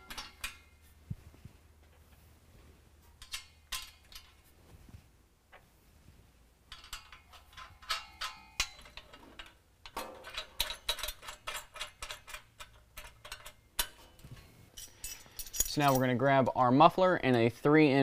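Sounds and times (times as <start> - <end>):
small metal clicks and clinks: 3.2 - 4.4, 6.7 - 16.2.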